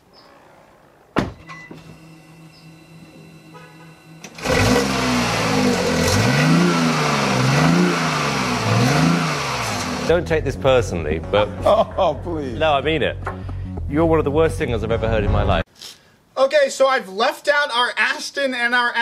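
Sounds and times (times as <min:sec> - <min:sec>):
car engine revving: 0:01.8 - 0:10.1.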